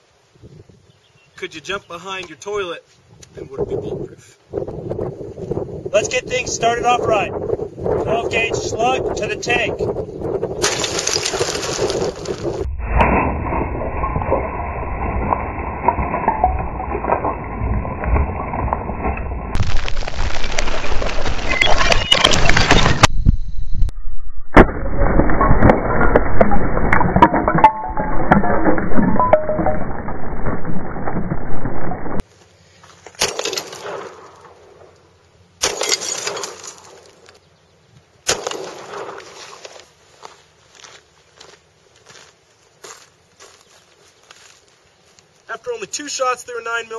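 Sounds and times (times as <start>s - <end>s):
slowed-down porcelain shattering rumble: 10.6s - 23.1s, 24.6s - 32.2s
pistol shots with echo: 38.3s - 39.2s.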